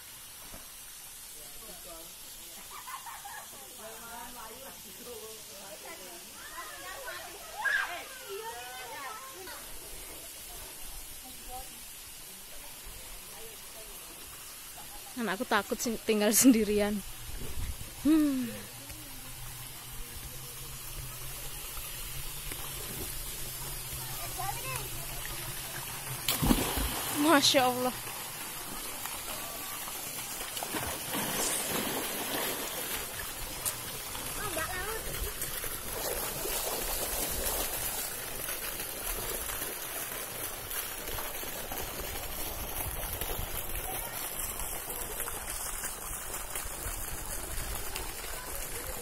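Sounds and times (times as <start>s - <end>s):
faint hiss: 0.0s - 49.0s
running splashing water: 0.0s - 49.0s
person humming: 18.0s - 18.8s.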